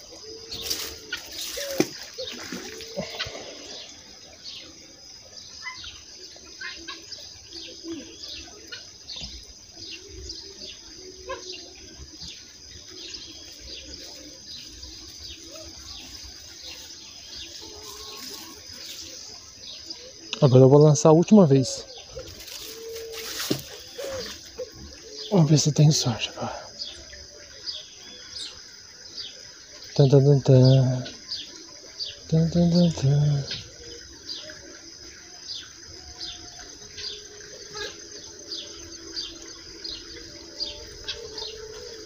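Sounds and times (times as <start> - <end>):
birds chirping: 0.0 - 42.0.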